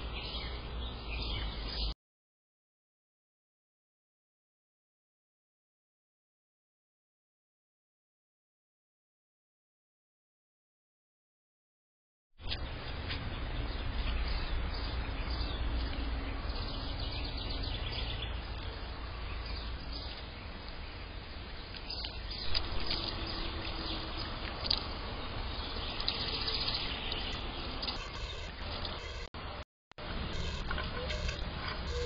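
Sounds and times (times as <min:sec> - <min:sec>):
bird chirps: 0:21.7 - 0:29.3, 0:30.3 - 0:32.0.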